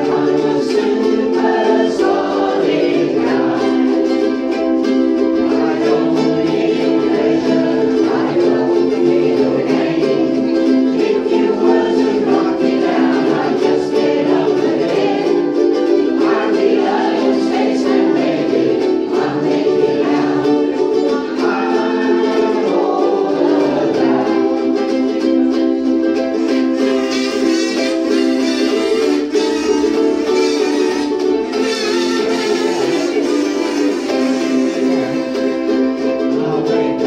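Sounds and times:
ukuleles strumming chords: 0.0s - 37.0s
voices singing along: 0.0s - 37.0s.

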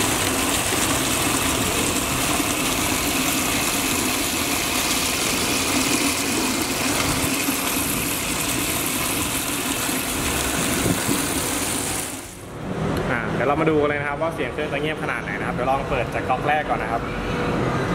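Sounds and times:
water gushing from taps: 0.0s - 12.5s
water pump running: 0.0s - 12.6s.

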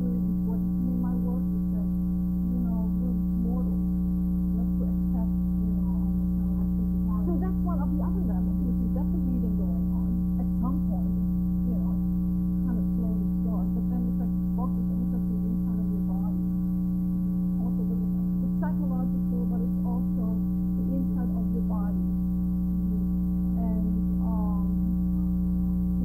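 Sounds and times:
electrical mains hum: 0.0s - 26.0s.

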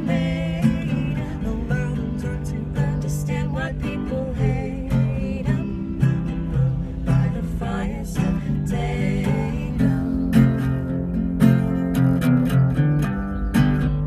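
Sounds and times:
man and woman singing: 0.0s - 10.9s
acoustic guitar strumming: 0.0s - 14.0s.

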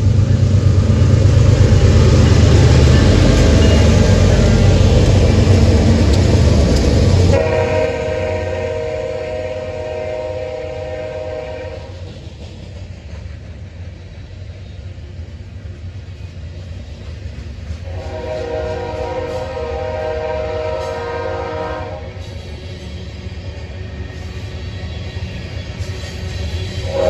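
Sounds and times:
diesel locomotive rumbling: 0.0s - 27.0s
rail cars rolling on rails: 0.0s - 27.0s
locomotive air horn: 7.3s - 11.9s, 17.8s - 22.2s, 26.8s - 27.0s.

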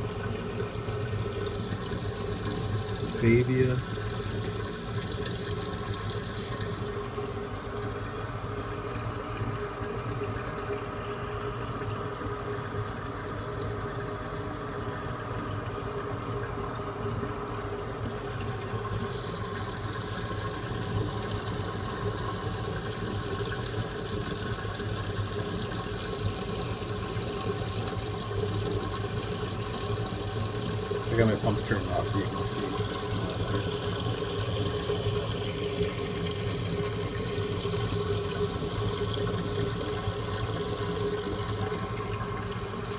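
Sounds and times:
low pump hum: 0.0s - 42.9s
water rushing and trickling: 0.0s - 42.9s.

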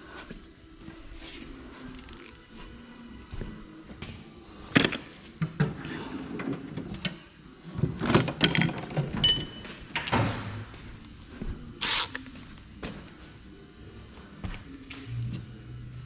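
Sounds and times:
metal tools clinking in a drawer: 8.0s - 10.1s.

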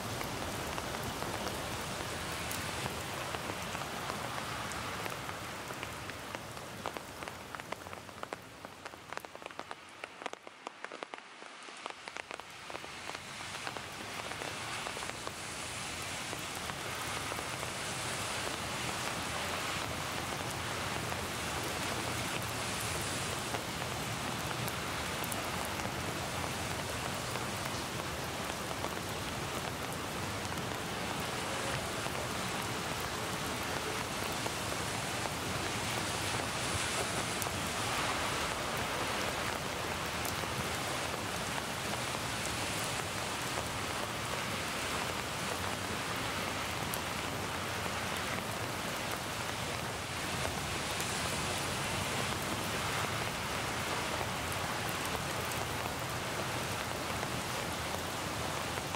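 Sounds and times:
steady rain hiss: 0.0s - 58.9s
raindrop ticks: 0.1s - 15.4s, 16.0s - 42.0s.

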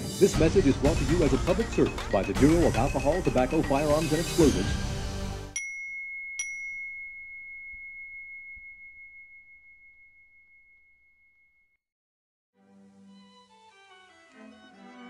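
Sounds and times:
bell-like chime ringing: 0.3s - 11.7s.

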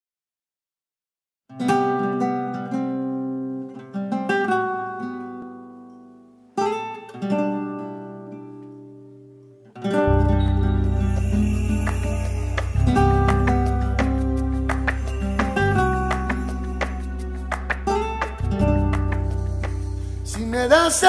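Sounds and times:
acoustic guitar strumming chords: 1.5s - 21.0s.

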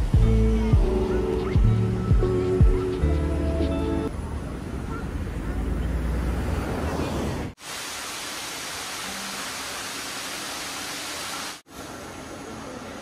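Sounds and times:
cars passing with low rumble: 1.6s - 7.6s
steady rushing hiss: 7.5s - 13.0s.

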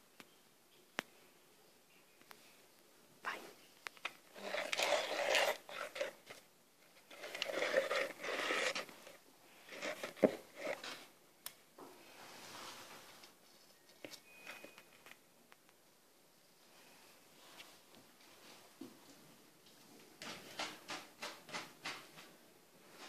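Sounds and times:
squishing and scraping in glaze: 3.8s - 11.1s.

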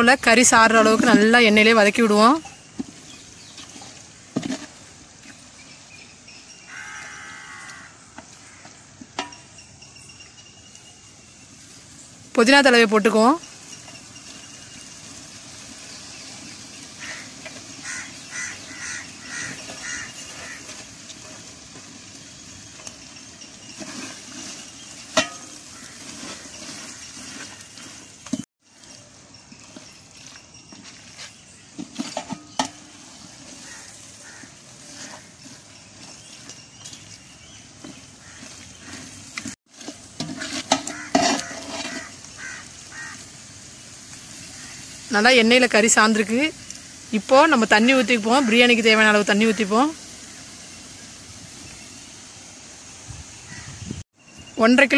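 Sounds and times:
metal ladle scraping a pot: 13.4s - 43.3s
meat sizzling in oil: 13.5s - 28.2s, 38.0s - 53.1s.

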